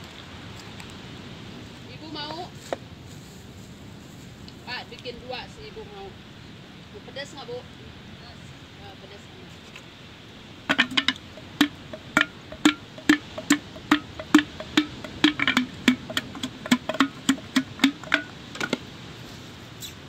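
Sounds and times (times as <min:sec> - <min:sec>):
wooden pestle pounding in mortar: 0:10.7 - 0:18.8.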